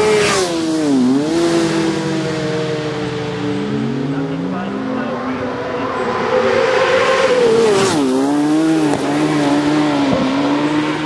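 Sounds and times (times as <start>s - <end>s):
motorcycle engine passing by: 4.6s - 11.0s.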